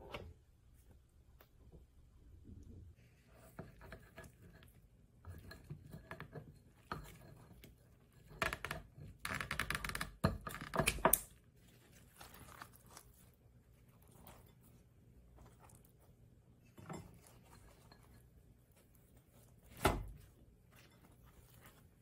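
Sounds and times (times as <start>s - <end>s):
cloth rustling: 11.6s - 22.0s.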